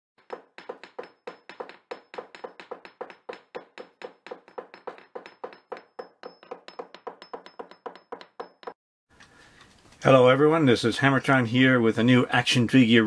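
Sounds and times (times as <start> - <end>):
rapid ringing knocks: 0.2 - 8.8.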